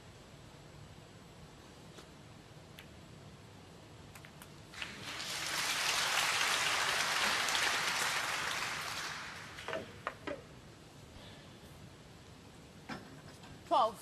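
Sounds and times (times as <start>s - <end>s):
audience applauding: 4.7s - 10.0s.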